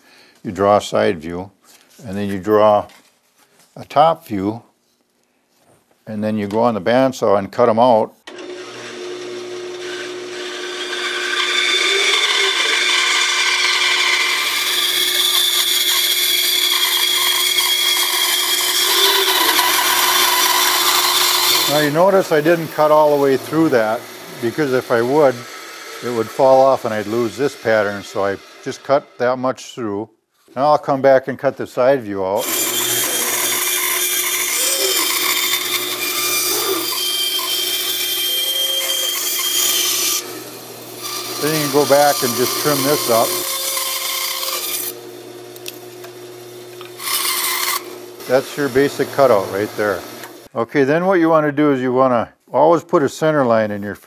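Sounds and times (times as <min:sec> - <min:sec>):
bandsaw motor hum: 0:08.3 - 0:29.2, 0:32.4 - 0:50.5
bandsaw blade cutting wood: 0:08.3 - 0:29.3, 0:32.4 - 0:50.5.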